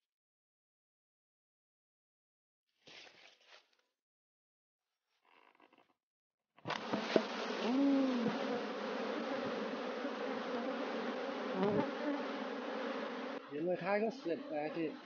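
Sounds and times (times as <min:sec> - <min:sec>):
bees buzzing: 0:06.7 - 0:15.0
bees whining past microphone: 0:06.8 - 0:15.0.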